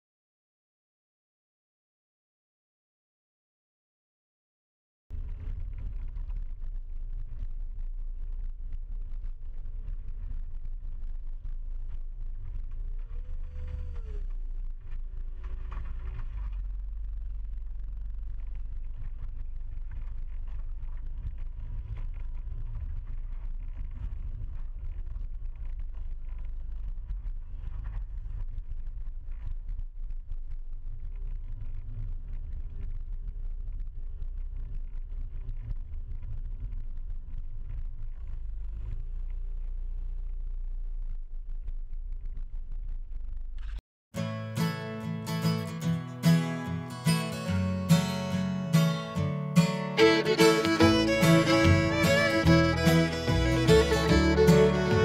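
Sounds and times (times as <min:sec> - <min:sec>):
diesel engine running: 0:50.0 - 0:55.0.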